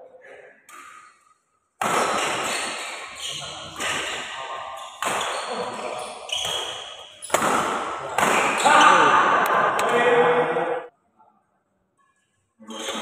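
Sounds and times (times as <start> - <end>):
racket hitting shuttlecock: 0.7 - 8.9.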